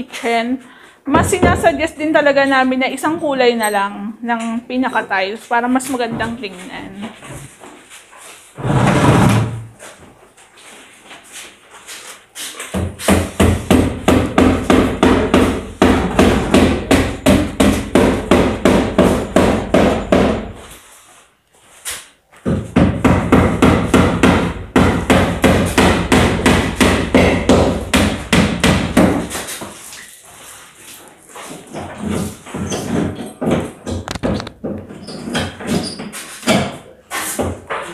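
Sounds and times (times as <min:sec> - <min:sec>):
rapid hammering: 0:12.8 - 0:20.6, 0:22.5 - 0:29.4.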